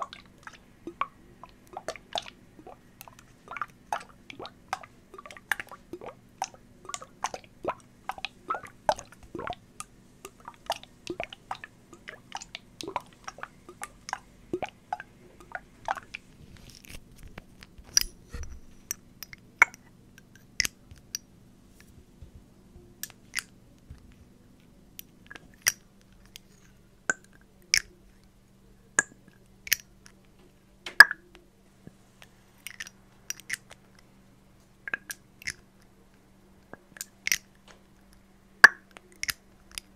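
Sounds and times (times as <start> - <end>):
faint electrical hum: 0.0 - 39.9.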